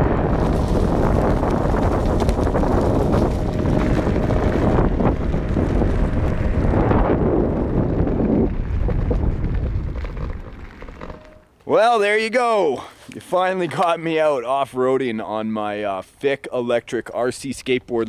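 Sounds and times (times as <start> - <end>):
wind buffeting microphone: 0.0 - 11.3.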